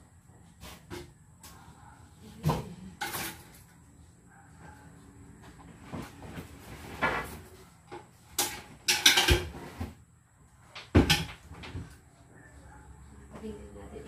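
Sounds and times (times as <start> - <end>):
items knocking and clattering: 2.4 - 3.7, 5.9 - 10.0, 10.8 - 12.0.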